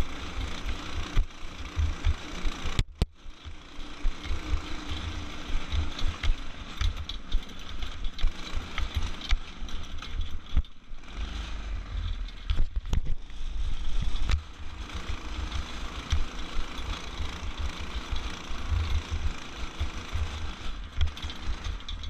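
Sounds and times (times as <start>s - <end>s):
go-kart engine running: 0.0s - 22.0s
knocks and rattles: 0.2s - 13.3s, 14.0s - 22.0s.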